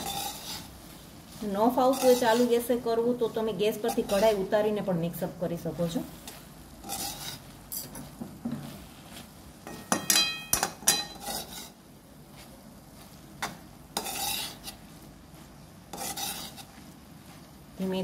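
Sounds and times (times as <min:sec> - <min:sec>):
spoon scraping metal pan: 0:00.0 - 0:00.8, 0:01.4 - 0:04.6, 0:06.2 - 0:08.0, 0:09.6 - 0:11.8, 0:13.4 - 0:14.8, 0:15.9 - 0:16.8
spoon clinking against pan: 0:09.6 - 0:11.5.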